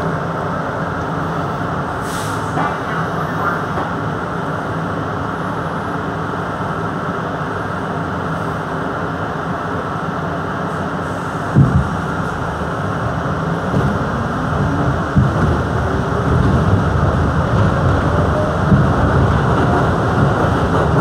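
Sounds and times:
subway car running noise: 0.0 - 21.0
air hiss: 2.0 - 2.6.

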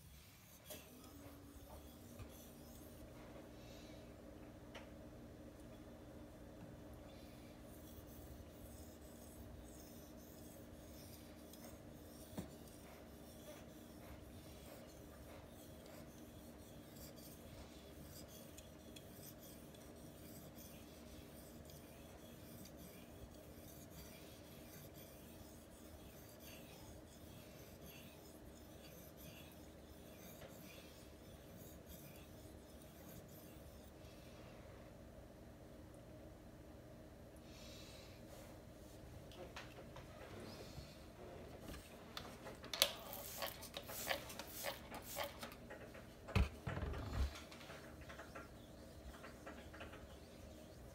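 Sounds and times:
knife scraping on whetstone: 7.7 - 33.9, 42.9 - 45.6, 46.9 - 50.9.

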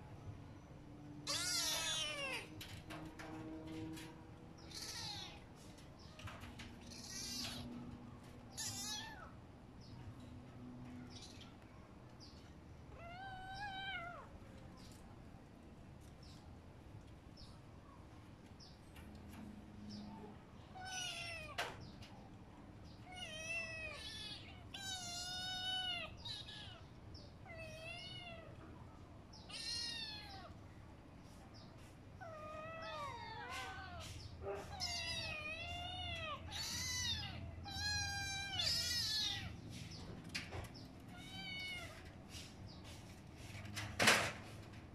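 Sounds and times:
kittens meowing: 1.2 - 2.6, 4.6 - 5.6, 6.8 - 9.4, 12.9 - 14.3, 20.7 - 21.7, 23.0 - 28.6, 29.4 - 30.6, 32.2 - 42.1.

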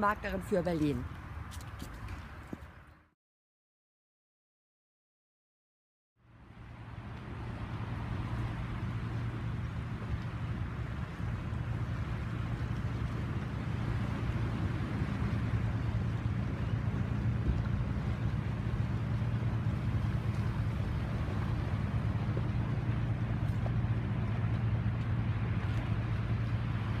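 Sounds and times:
boat engine humming: 6.2 - 27.0.

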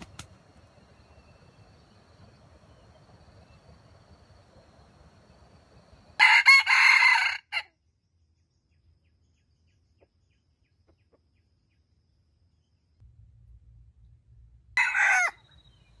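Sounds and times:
rooster crowing: 6.2 - 7.7, 14.8 - 15.5.

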